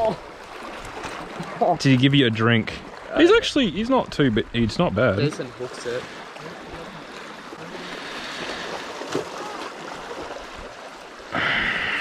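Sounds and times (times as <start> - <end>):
water noise: 0.0 - 12.0
wind: 0.0 - 12.0.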